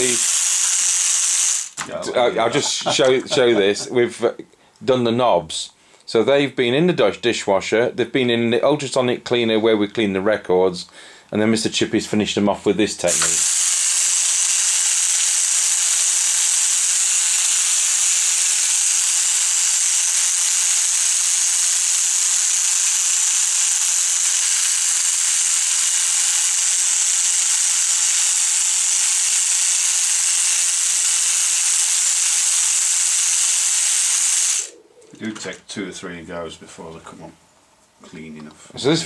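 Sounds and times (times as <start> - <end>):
electric toothbrush hissing: 0.0 - 1.8, 13.0 - 34.8.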